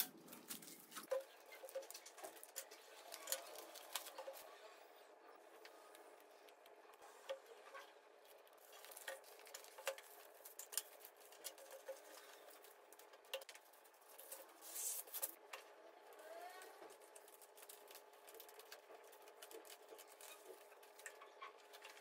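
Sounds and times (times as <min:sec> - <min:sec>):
paper crinkling: 0:00.0 - 0:04.5, 0:08.3 - 0:15.4, 0:16.8 - 0:22.0
wallpaper being unrolled and smoothed: 0:14.1 - 0:15.4.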